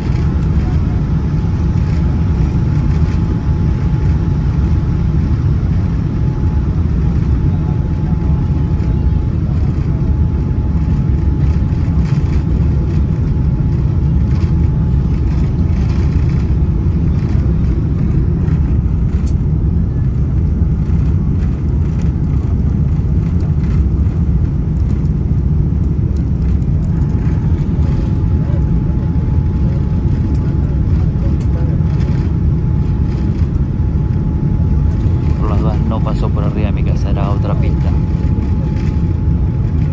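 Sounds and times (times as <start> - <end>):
faint steady whine: 0.0 - 39.9
jet engine roar inside cabin: 0.0 - 39.9.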